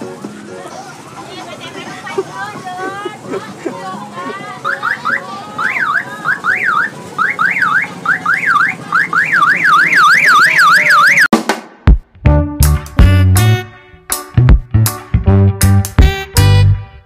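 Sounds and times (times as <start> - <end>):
electronic siren warbling: 4.7 - 11.3
loud drum hits: 11.3 - 12.1.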